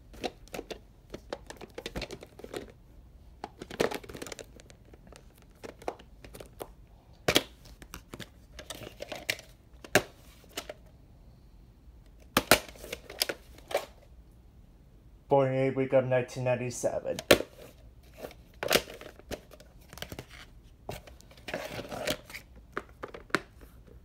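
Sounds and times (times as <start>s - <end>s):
plastic case clicks and rustles: 0.1s - 2.8s, 3.4s - 10.8s, 12.1s - 14.0s, 17.2s - 23.7s.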